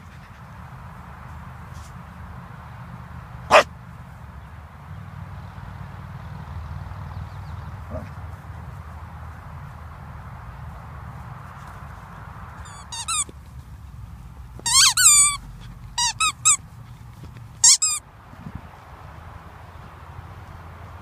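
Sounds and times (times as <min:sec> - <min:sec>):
squeaky toy ball squeaking: 0:12.6 - 0:13.3, 0:14.6 - 0:16.6, 0:17.6 - 0:18.0.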